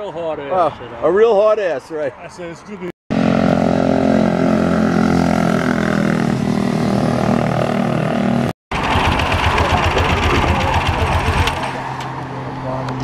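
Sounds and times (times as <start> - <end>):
motorcycle engine running: 3.1 - 11.7
motorcycle engine idling unevenly: 8.8 - 11.6.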